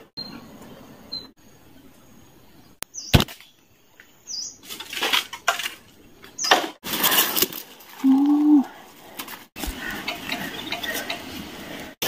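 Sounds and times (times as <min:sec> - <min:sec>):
short high bird chirps: 0:02.9 - 0:03.5
bird wings flapping in dry leaves: 0:06.8 - 0:11.1.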